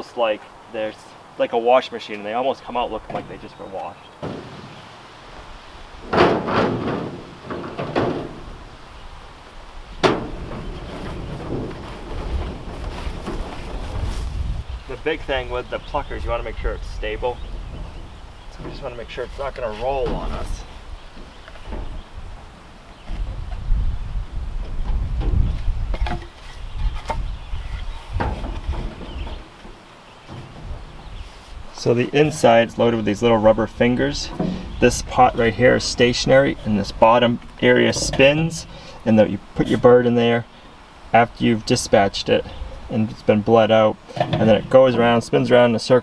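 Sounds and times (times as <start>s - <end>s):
low outdoor rumble: 0.0s - 45.4s
metal knocks and clunks: 2.9s - 3.6s, 4.2s - 4.8s, 6.0s - 8.7s, 9.9s - 14.2s, 15.5s - 23.8s, 24.6s - 38.8s, 44.1s - 45.0s
wooden board knocks: 4.2s - 4.8s.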